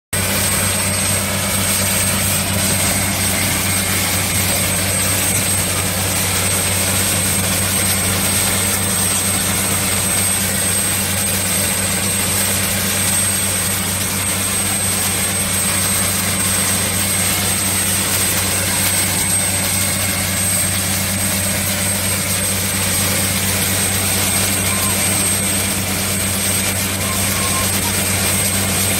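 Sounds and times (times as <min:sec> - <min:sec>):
drilling rig engine drone: 0:00.2 - 0:28.9
water spraying: 0:00.2 - 0:28.9
thin high-pitched whistle: 0:23.8 - 0:28.9.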